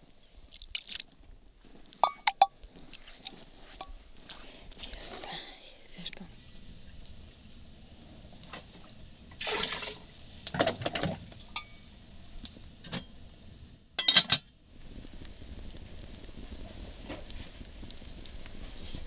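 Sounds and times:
mug knocking against pots: 2.0s - 2.5s
water pouring: 8.5s - 11.3s.

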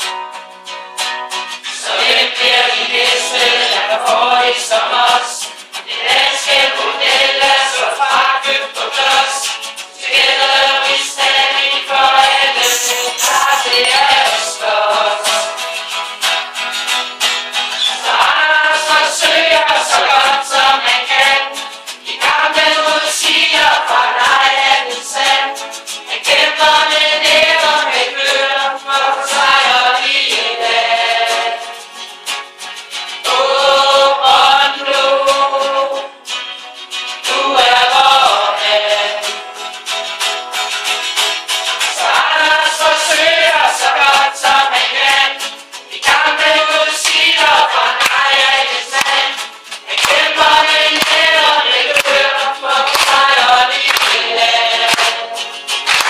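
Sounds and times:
guitar accompaniment: 0.0s - 56.0s
group of people singing: 1.6s - 16.3s, 17.6s - 32.1s, 33.0s - 36.4s, 37.1s - 40.0s, 41.6s - 56.0s.

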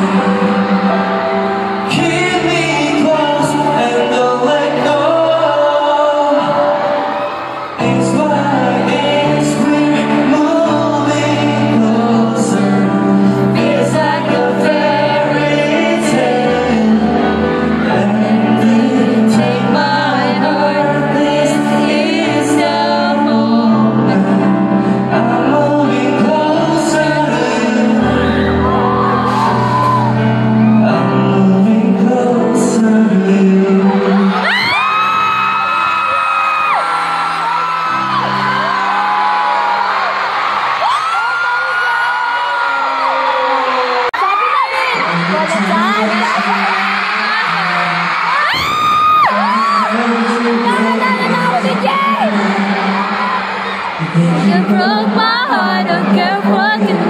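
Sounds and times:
man singing into a microphone: 0.0s - 35.5s, 44.8s - 57.0s
band backing track: 0.0s - 42.4s.

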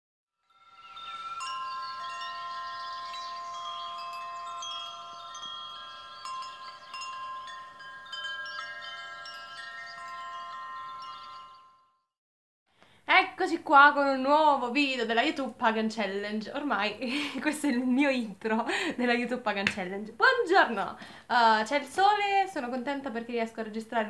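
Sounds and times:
wind chimes ringing: 0.4s - 12.2s.

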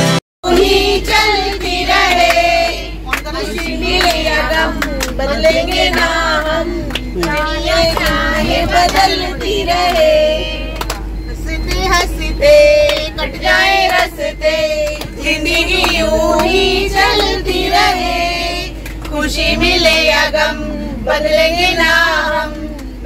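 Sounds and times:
group singing together: 0.4s - 23.0s
hand claps: 6.9s - 8.2s, 10.8s - 11.1s, 13.8s - 14.1s, 14.8s - 17.4s.

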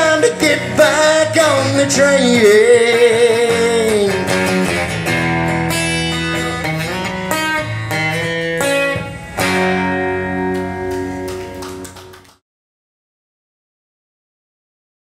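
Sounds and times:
acoustic guitar strumming: 0.0s - 11.9s.

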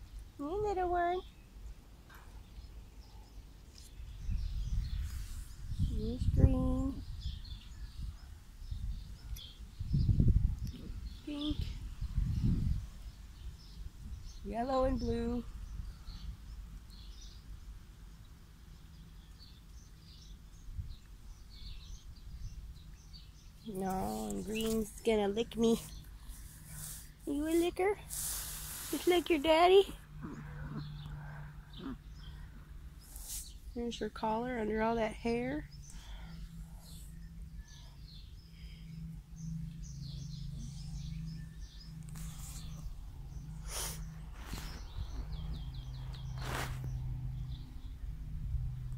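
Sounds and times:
birds chirping: 0.0s - 48.2s
steady low hum: 20.2s - 48.9s
steady low rumble: 23.5s - 48.9s.

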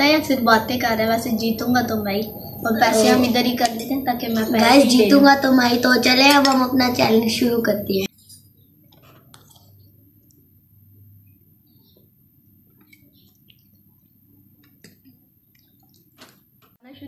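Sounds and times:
low room hum: 0.0s - 17.0s
cutlery clicking against plates: 6.0s - 6.9s.

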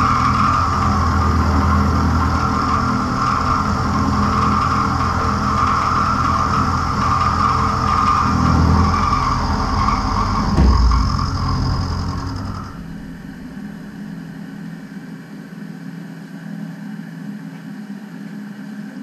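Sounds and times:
heavy bump: 0.0s - 14.8s
spindle humming: 0.0s - 15.0s.

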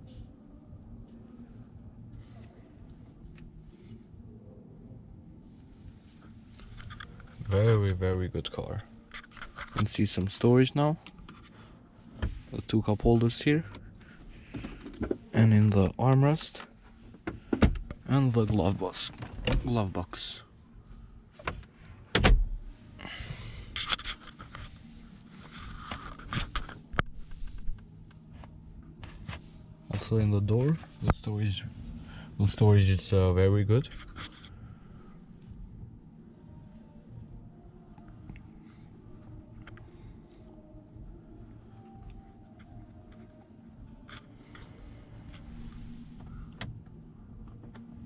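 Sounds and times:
faint low hum: 0.0s - 48.0s
light scraping and rubbing: 9.1s - 10.2s, 23.6s - 27.8s, 33.8s - 34.6s.

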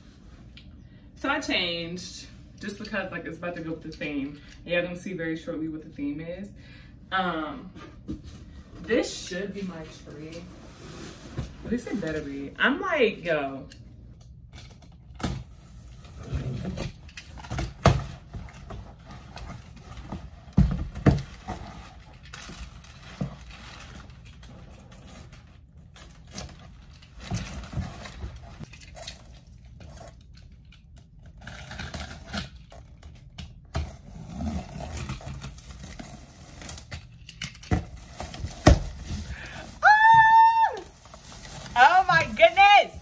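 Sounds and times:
box cutter slitting tape: 31.4s - 32.8s.

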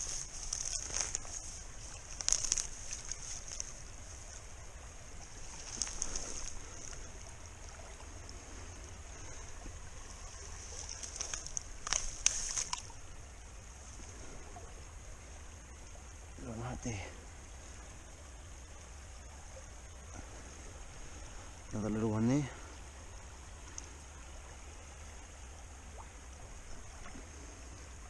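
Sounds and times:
water splashing: 0.0s - 14.8s
river flowing: 0.0s - 28.0s
rustling wet grass: 0.0s - 28.0s.

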